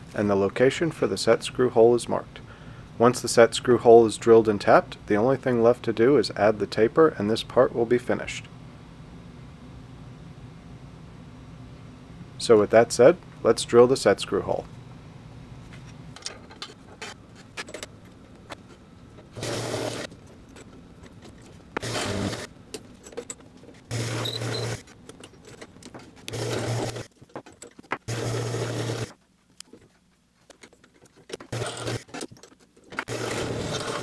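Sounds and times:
drill press drilling metal: 19.4s - 20.1s, 21.8s - 22.5s, 23.9s - 24.8s, 26.3s - 27.1s, 28.1s - 29.1s, 31.5s - 32.2s, 33.1s - 34.0s.

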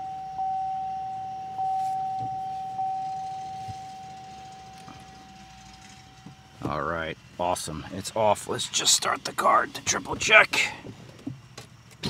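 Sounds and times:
car dashboard warning chime: 0.0s - 6.3s.

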